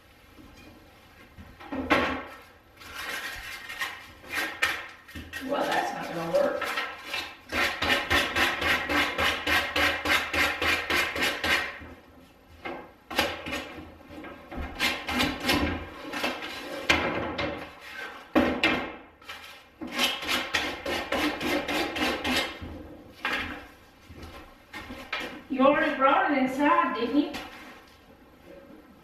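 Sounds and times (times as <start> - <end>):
hand tool scraping wood: 2.8 - 11.8, 14.5 - 17.0, 17.6 - 18.4, 19.2 - 23.6.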